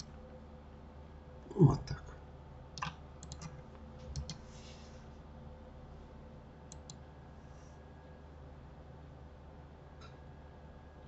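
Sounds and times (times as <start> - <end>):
faint steady hum: 0.0 - 11.0
mouse and keyboard clicks: 2.8 - 3.5, 4.1 - 4.4.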